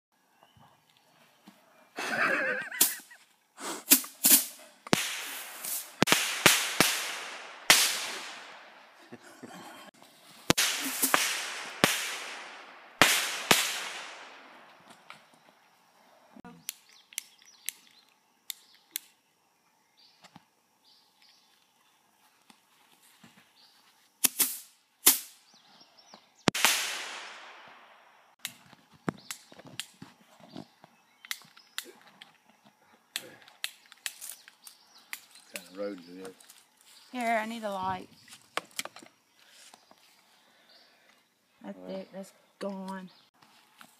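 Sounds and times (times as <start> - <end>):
fireworks bangs with hiss: 2.7 - 9.0, 10.2 - 15.1, 24.2 - 25.5, 26.5 - 29.6
small firework pops: 3.9 - 8.8, 10.4 - 15.3, 26.5 - 30.1.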